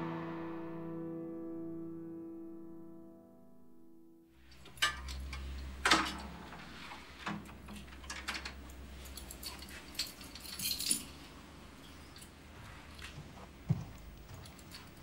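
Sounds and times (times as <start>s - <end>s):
keys jangling: 4.5s - 6.4s, 7.5s - 12.4s, 14.0s - 15.0s
door being opened: 4.5s - 10.8s.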